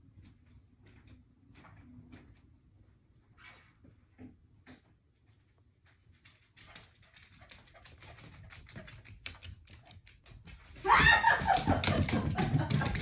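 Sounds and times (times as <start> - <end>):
dog claws clicking on hardwood floor: 6.1 - 13.0.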